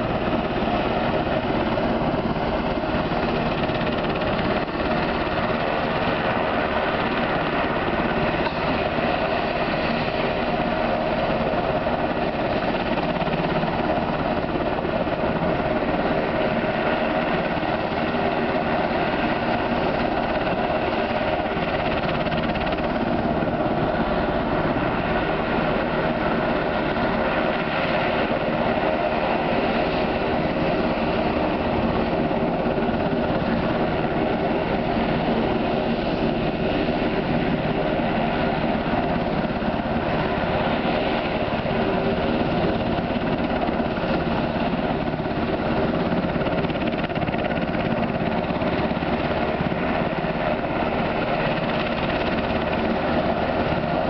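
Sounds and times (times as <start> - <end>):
helicopter engine and rotor: 0.0 - 54.0.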